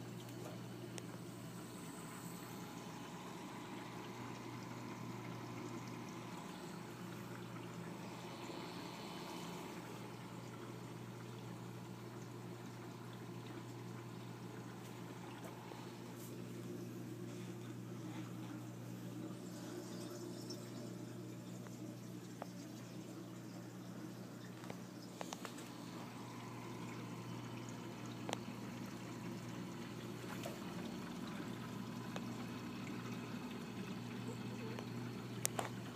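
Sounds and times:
aquarium pumps humming: 0:00.0 - 0:35.9
water trickling and splashing: 0:00.0 - 0:35.9.

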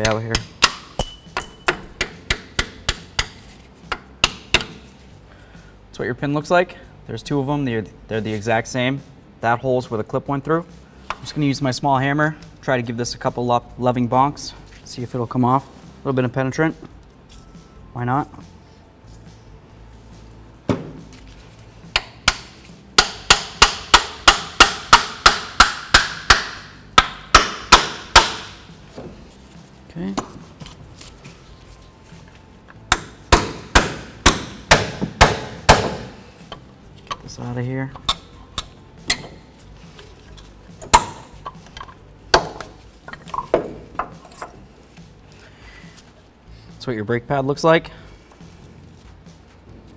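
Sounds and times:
metal knocks and clanks: 0:00.0 - 0:02.2
hammer striking metal: 0:00.0 - 0:03.4, 0:21.9 - 0:28.6, 0:32.9 - 0:36.2, 0:40.8 - 0:41.3.

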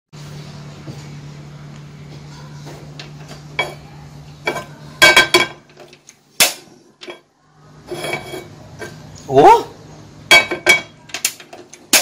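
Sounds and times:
frying pan clinking on burner grate: 0:10.3 - 0:12.0.

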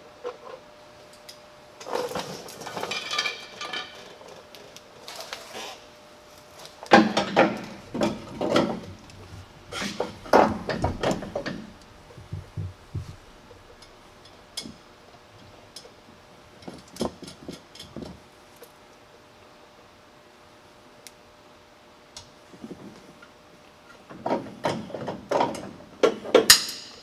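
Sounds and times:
metal clanks and knocks: 0:06.9 - 0:14.8.

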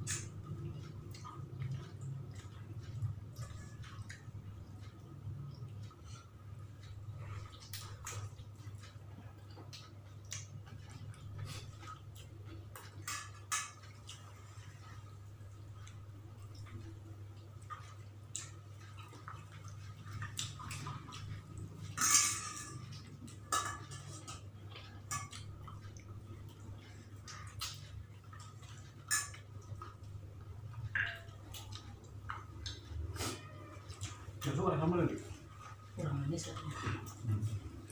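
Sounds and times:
plates and tableware clinking: 0:21.9 - 0:24.4
tableware clatter: 0:21.9 - 0:24.4
mouth noises of eating: 0:24.0 - 0:37.9.

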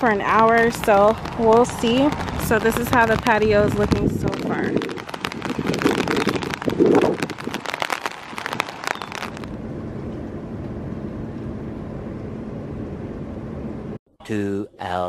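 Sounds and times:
raindrops tapping near microphone: 0:00.0 - 0:09.5
steady rain hiss: 0:00.6 - 0:09.5.

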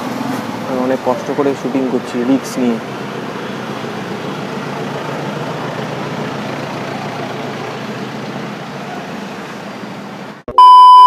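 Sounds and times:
steady mechanical drone: 0:00.0 - 0:10.4.

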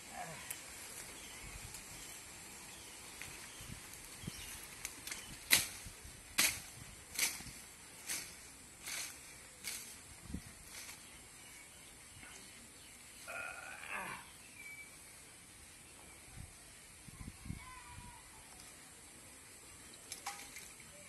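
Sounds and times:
outdoor background: 0:00.0 - 0:21.0
blade cutting through grass: 0:04.8 - 0:10.0.

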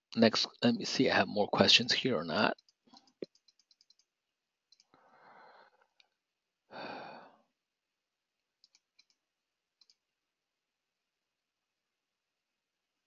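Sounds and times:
person exhaling into microphone: 0:06.7 - 0:07.3.

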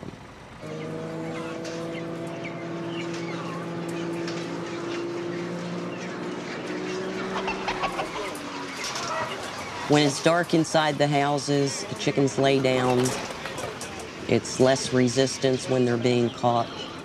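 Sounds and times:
machine drone: 0:00.0 - 0:10.0
chickens clucking and peeping: 0:00.5 - 0:17.0.

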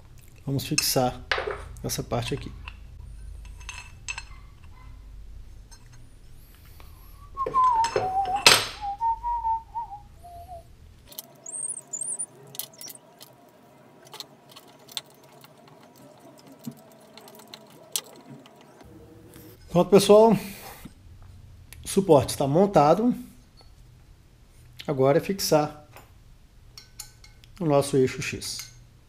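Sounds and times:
person whistling: 0:07.2 - 0:10.7.

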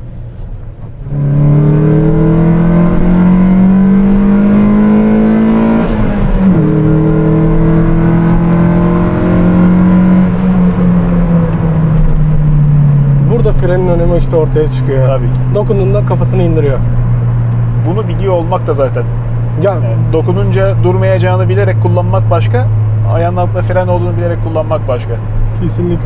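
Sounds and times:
car engine accelerating: 0:00.2 - 0:26.0.

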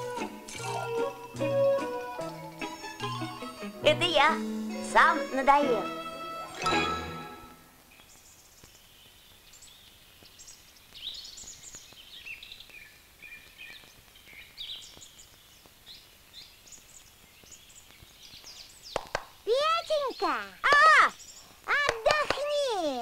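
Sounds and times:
songbirds chirping: 0:00.0 - 0:23.0.

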